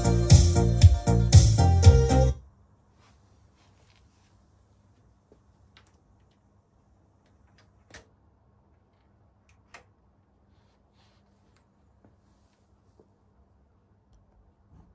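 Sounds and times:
faint low hum: 2.4 - 14.9.

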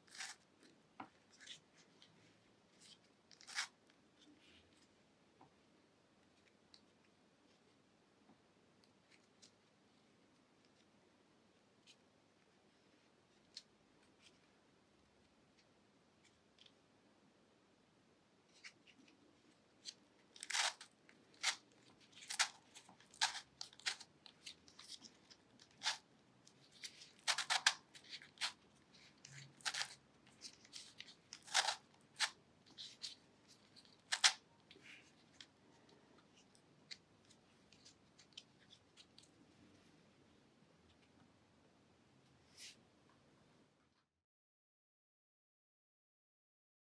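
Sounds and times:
plastic puzzle pieces clicking: 34.0 - 34.4.

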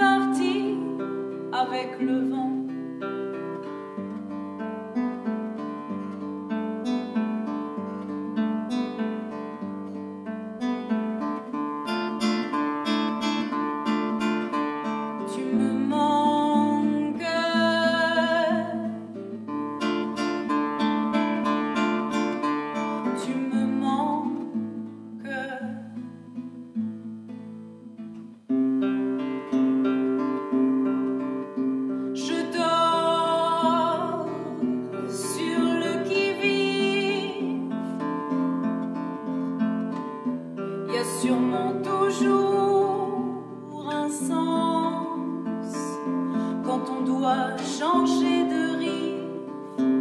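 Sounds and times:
woman singing: 0.0 - 3.1, 15.0 - 19.2, 22.8 - 26.1, 32.1 - 38.4, 40.8 - 50.0
classical guitar plucked notes: 0.0 - 50.0.

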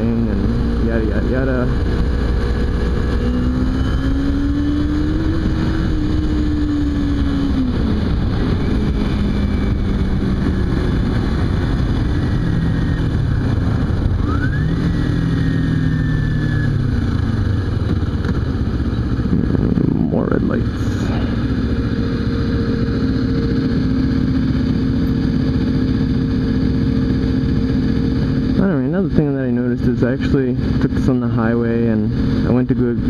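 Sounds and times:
wind noise: 0.0 - 28.6
motorcycle engine revving: 0.0 - 33.0
road noise: 0.0 - 33.0.

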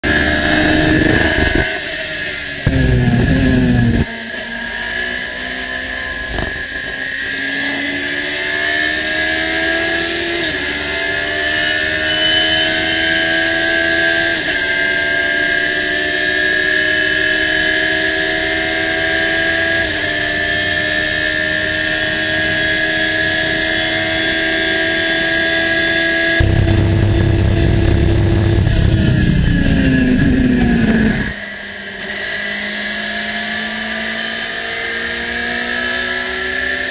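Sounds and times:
car engine at full throttle: 0.0 - 36.9
deep rumble: 2.7 - 4.1, 26.4 - 31.4.

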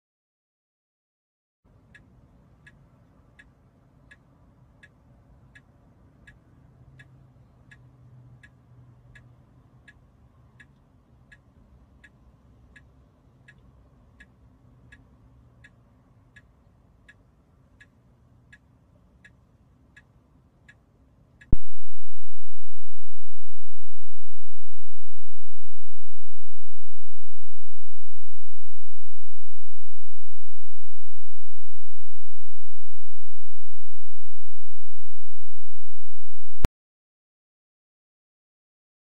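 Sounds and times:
faint low hum: 1.7 - 36.7
turn signal clicking: 1.9 - 21.6.

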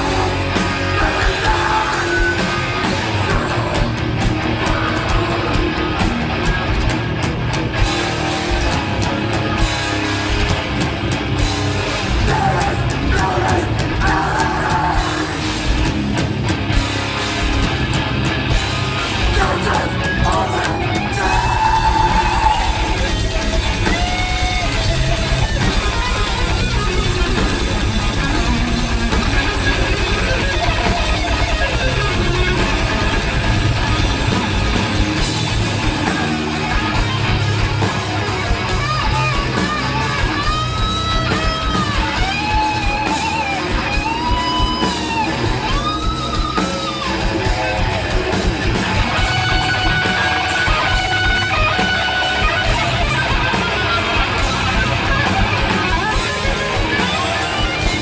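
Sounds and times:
distorted electric guitars: 0.0 - 58.0
fast drumming: 0.0 - 58.0.

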